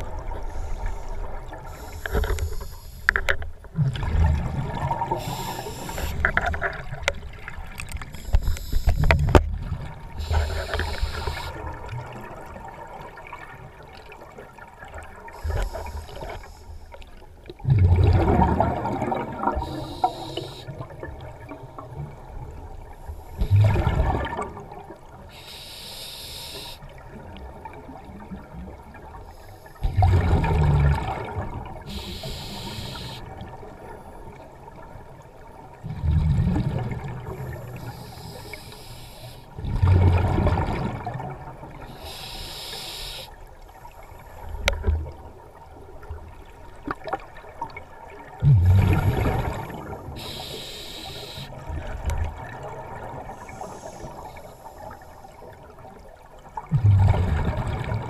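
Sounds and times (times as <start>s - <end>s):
regulator inhalation hiss: 0.4s - 3.1s, 5.1s - 6.2s, 8.2s - 9.1s, 10.2s - 11.6s, 15.4s - 16.8s, 19.6s - 20.7s, 25.3s - 26.8s, 31.9s - 33.3s, 37.6s - 39.5s, 41.9s - 43.4s, 50.1s - 51.6s, 53.3s - 55.3s
bursts of bubbles: 17.7s - 19.8s, 48.4s - 50.0s, 56.7s - 58.0s.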